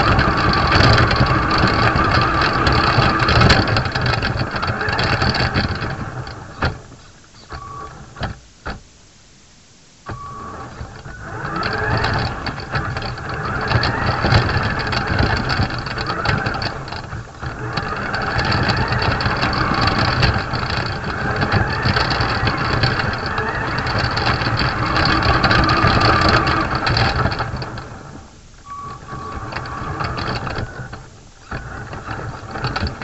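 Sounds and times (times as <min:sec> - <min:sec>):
model car motor running: 0:00.0 - 0:06.1, 0:10.2 - 0:27.9.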